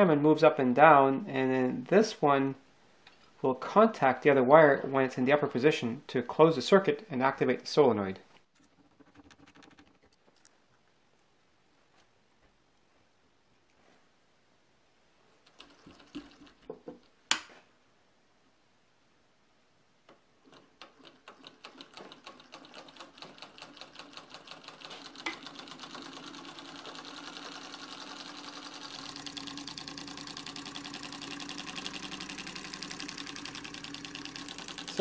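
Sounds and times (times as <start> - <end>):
solenoid engine clattering: 20.5 - 35.0.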